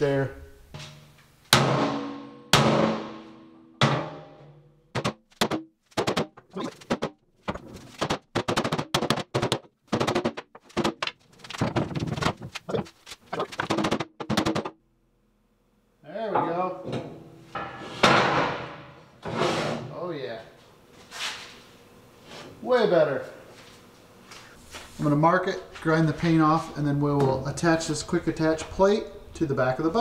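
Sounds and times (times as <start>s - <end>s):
percussive background music: 3.8s - 7.2s.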